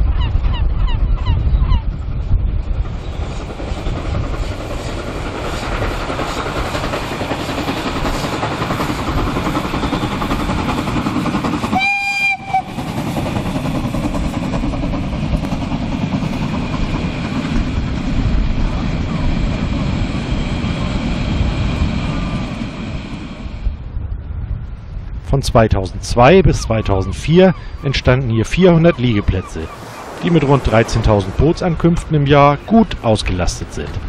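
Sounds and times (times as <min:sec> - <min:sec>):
steam train passing: 0:02.6 - 0:23.8, 0:26.0 - 0:34.0
train whistle blast: 0:11.7 - 0:12.8.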